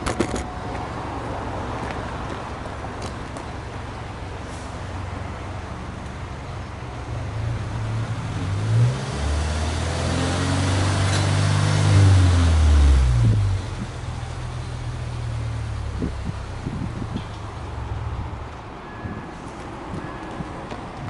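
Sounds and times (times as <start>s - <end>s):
car engine revving at exhaust: 7.3s - 14.4s.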